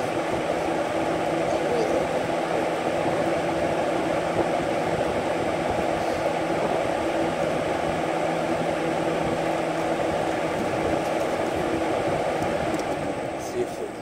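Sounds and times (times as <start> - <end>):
box fan air rush: 0.0 - 14.0
low motor hum: 0.0 - 14.0.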